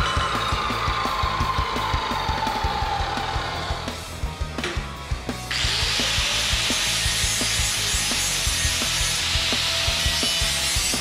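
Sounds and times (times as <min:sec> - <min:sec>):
angle grinder grinding metal: 0:05.5 - 0:11.0.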